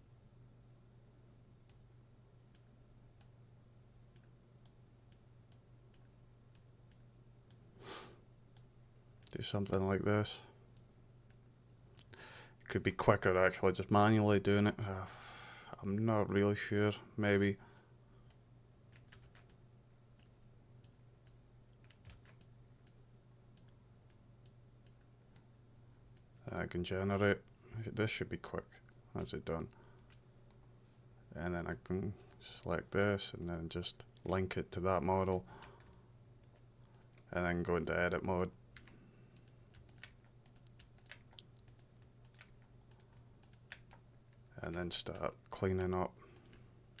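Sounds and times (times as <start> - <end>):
low electrical hum: 0.0 - 47.0.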